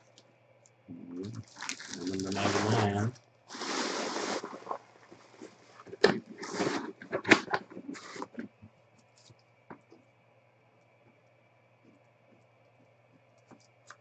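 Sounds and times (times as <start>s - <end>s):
wrapping rustling and crinkling: 1.2s - 9.4s.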